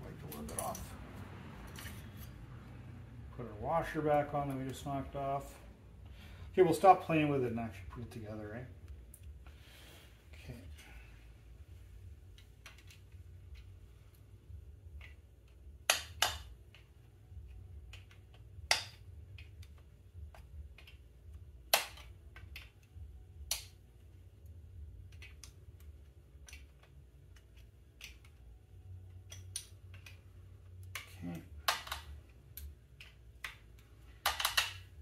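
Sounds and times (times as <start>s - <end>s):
low steady hum: 0.0s - 35.0s
metal tool clicks and clinks: 0.3s - 1.0s.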